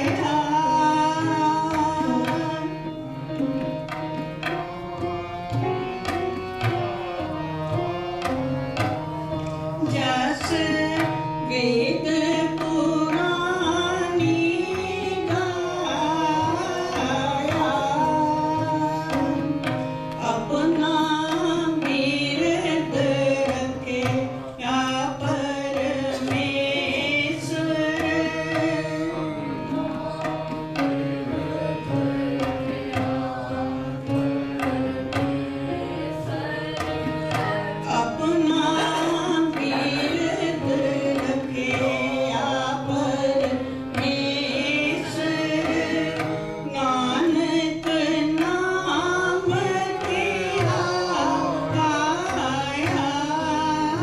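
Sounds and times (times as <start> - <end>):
harmonium and keyboard: 0.0 - 54.0
tabla rhythm: 0.0 - 54.0
woman singing a hymn: 36.3 - 54.0.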